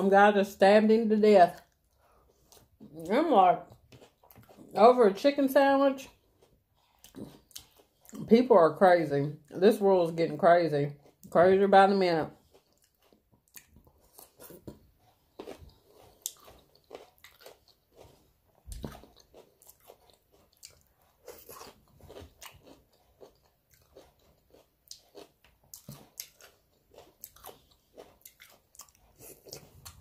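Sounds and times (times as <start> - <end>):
person chewing crunchy food: 1.5 - 4.8, 6.0 - 8.3, 10.9 - 11.4, 12.3 - 30.0.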